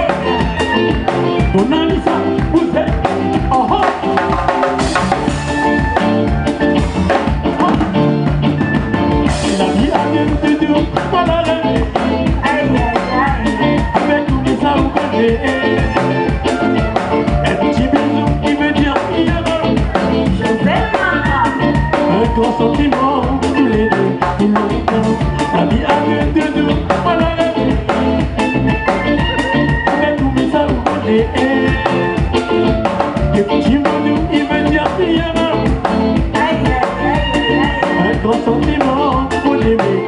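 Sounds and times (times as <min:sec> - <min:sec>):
live band playing: 0:00.0 - 0:40.0
people singing into microphones: 0:17.3 - 0:27.9, 0:33.2 - 0:40.0.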